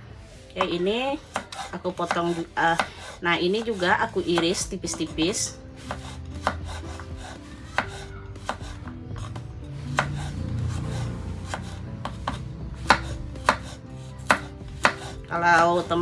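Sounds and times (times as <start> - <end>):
knife slicing on wooden board: 5.8 - 9.4, 10.0 - 15.1.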